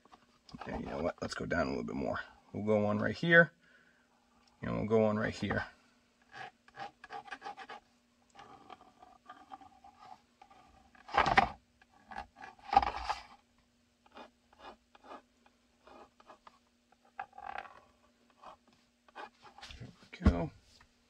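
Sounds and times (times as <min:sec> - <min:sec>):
plastic shell scraping and knocking: 0:06.2 - 0:13.4, 0:15.9 - 0:18.6
pencil scratching on plastic: 0:06.3 - 0:11.1, 0:14.0 - 0:19.8.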